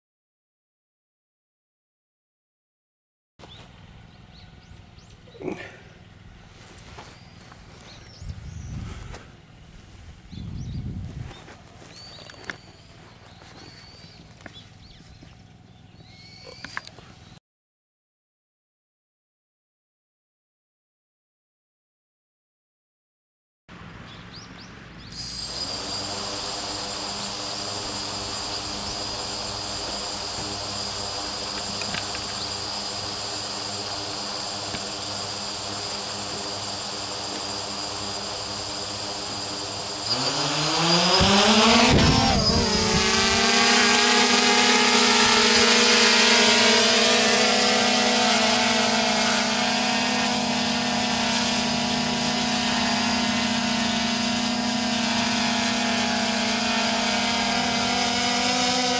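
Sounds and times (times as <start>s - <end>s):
drone motors whining: 25.1s - 58.9s.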